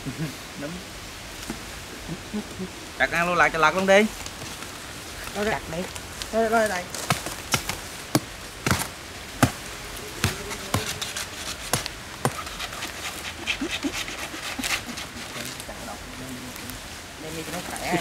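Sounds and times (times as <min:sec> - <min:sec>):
leaves crackling and tearing: 0:01.3 - 0:18.0
machete chopping: 0:07.0 - 0:09.6, 0:10.2 - 0:12.8.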